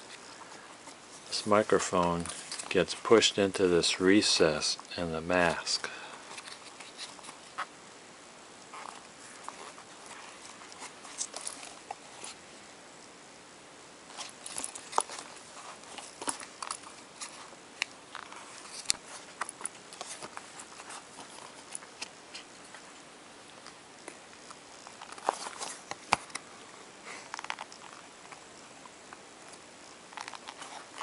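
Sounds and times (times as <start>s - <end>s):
rubber mask rubbing: 8.6s - 12.4s, 14.1s - 22.9s, 29.8s - 31.0s.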